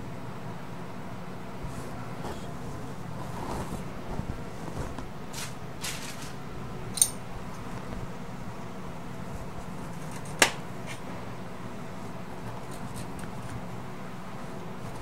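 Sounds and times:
soft scraping on dough: 1.6s - 5.2s.

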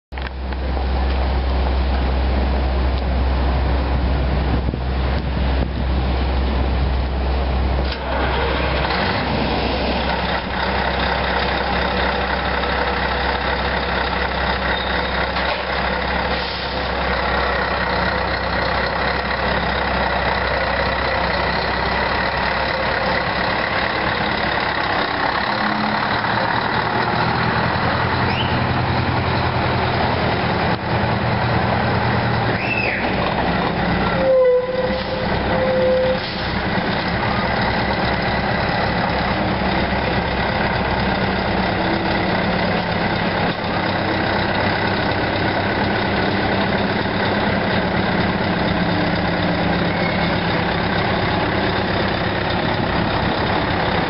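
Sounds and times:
diesel truck engine running: 0.1s - 54.0s
brief squeal: 28.2s - 28.7s, 32.6s - 33.2s, 34.1s - 36.6s, 49.8s - 50.4s.

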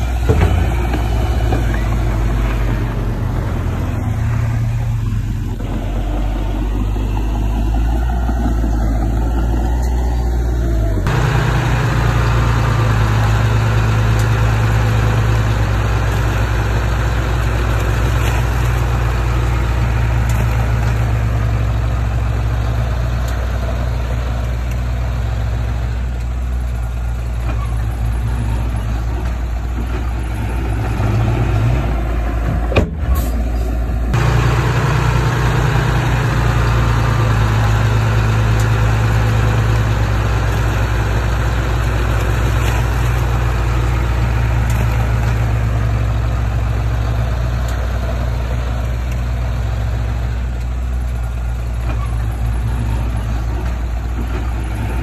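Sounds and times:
diesel engine running under load: 0.0s - 55.0s.

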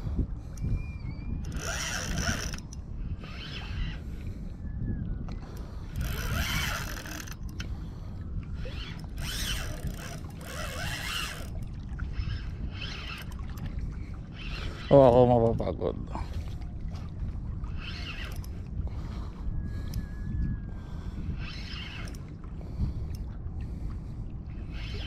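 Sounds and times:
fishing reel gears whirring: 0.5s - 4.0s, 5.4s - 7.8s, 8.5s - 15.6s, 17.7s - 18.7s, 19.7s - 23.3s, 24.6s - 25.0s.

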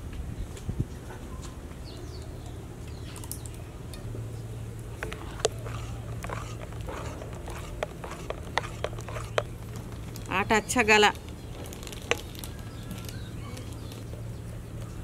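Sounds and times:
steady low hum: 2.4s - 15.0s
spoon stirring batter in glass bowl: 5.0s - 10.7s.

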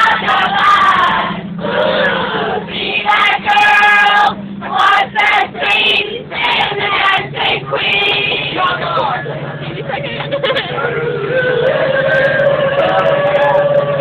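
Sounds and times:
group of people singing: 0.0s - 9.8s
steady low hum: 0.0s - 14.0s.

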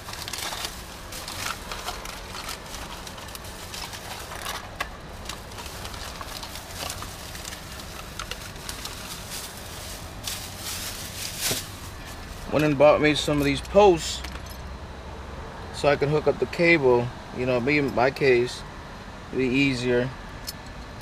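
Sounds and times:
plastic bag rustling: 0.0s - 13.6s.

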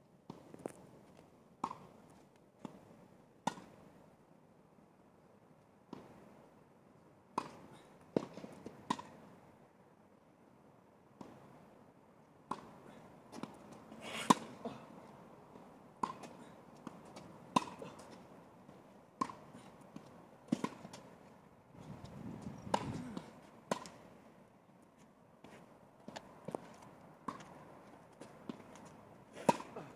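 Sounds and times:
racquets striking tennis ball: 15.6s - 21.1s, 28.2s - 29.9s.

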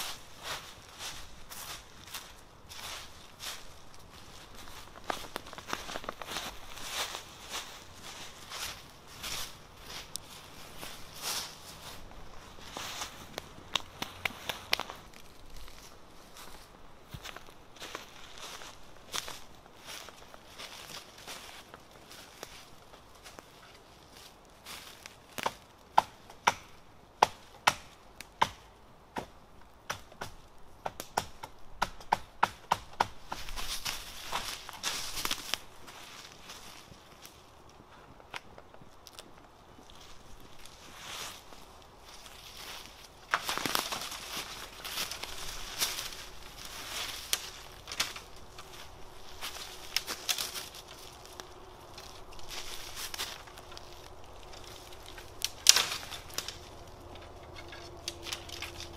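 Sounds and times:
rustling dry leaves: 0.0s - 26.3s, 32.8s - 58.9s
twigs cracking underfoot: 0.0s - 28.6s, 30.0s - 58.9s.

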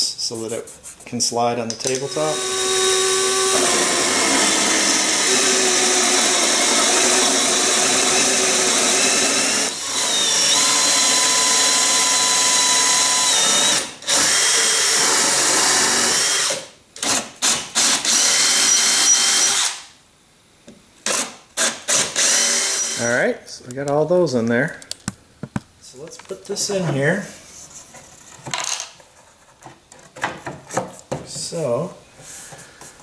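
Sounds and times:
power drill boring into wood: 2.0s - 19.8s, 21.1s - 23.1s.

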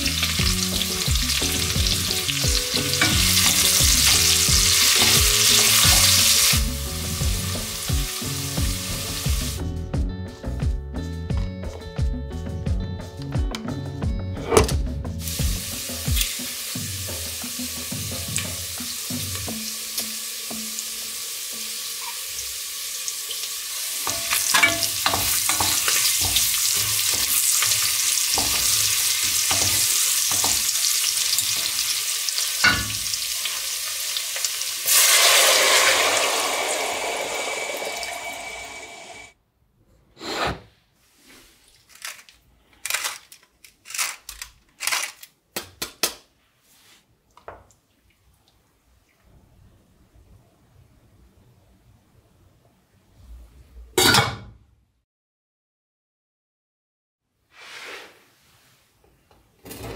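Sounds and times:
potatoes and bacon sizzling: 0.0s - 9.7s, 15.2s - 39.3s
pepper mill grinding: 24.0s - 33.7s, 41.7s - 45.4s
sudden rush of hissing: 35.0s - 39.3s.

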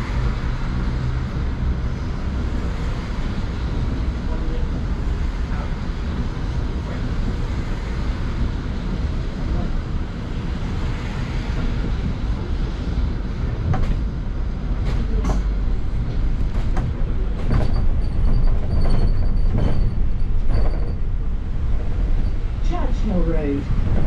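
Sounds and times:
bus engine and road rumble: 0.0s - 24.0s
bodywork rattles and knocks: 14.8s - 21.9s.

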